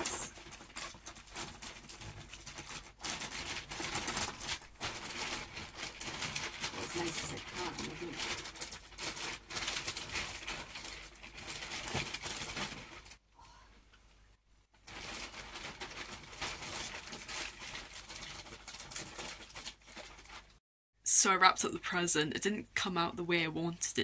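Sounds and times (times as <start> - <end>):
wrapping paper rustling: 0.0 - 13.2, 14.8 - 20.6.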